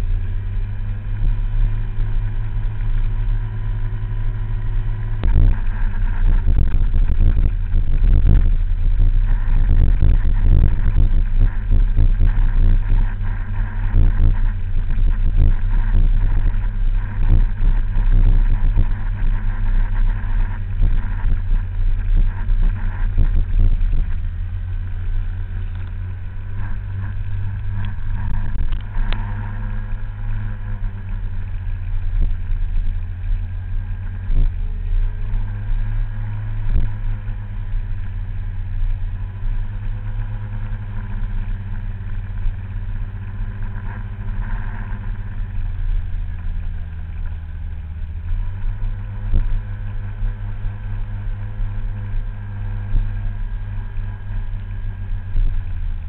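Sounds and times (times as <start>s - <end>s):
scooter engine running: 0.0s - 56.0s.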